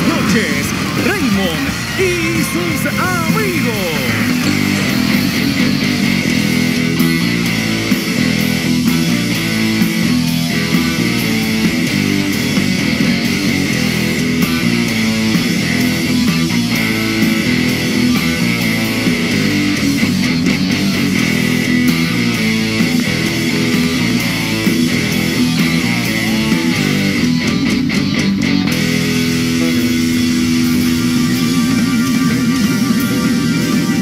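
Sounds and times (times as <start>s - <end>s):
live band playing instrumental: 0.0s - 20.6s
bass guitar: 0.0s - 34.0s
electric guitar: 0.0s - 34.0s
keyboard: 0.0s - 34.0s.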